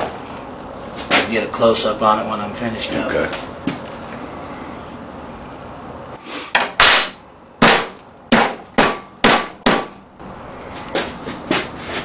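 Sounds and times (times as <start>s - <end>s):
sharp knocks on metal: 6.6s - 10.0s.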